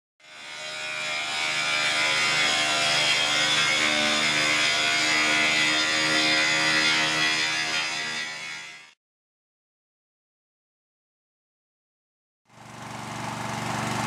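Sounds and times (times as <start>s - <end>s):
abrasive wheel grinding steel rail: 0.2s - 9.0s.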